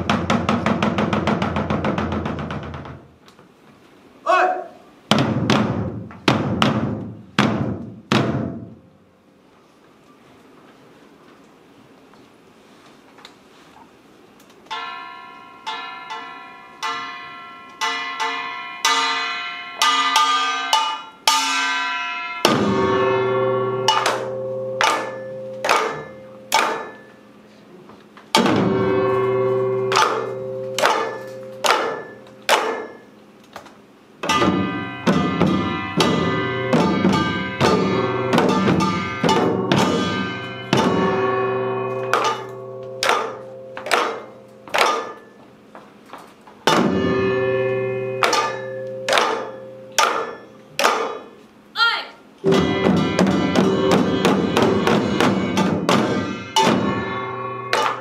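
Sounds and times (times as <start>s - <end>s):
small gong strokes: 14.7s - 27.6s, 28.4s - 33.2s, 34.3s - 45.4s, 46.7s - 50.7s, 52.4s - 58.0s
large gong ringing deep: 21.7s - 27.2s, 28.4s - 32.4s, 34.3s - 44.7s, 46.8s - 50.0s, 52.4s - 58.0s.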